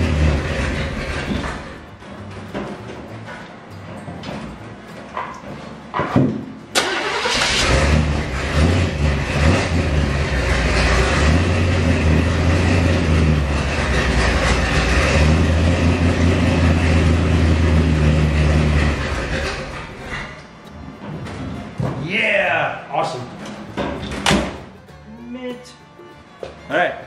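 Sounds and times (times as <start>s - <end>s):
engine cranking and idling: 0.0s - 2.5s, 6.7s - 20.6s.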